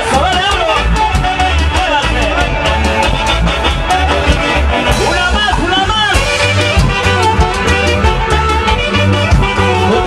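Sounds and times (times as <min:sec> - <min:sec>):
keyboard: 0:00.0 - 0:10.0
saxophones playing melody: 0:00.0 - 0:10.0
steady drum beat: 0:00.0 - 0:10.0.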